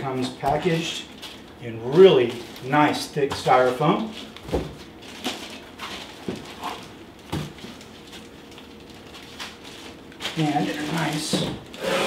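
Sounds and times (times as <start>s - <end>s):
styrofoam and cardboard handling: 8.9s - 12.0s.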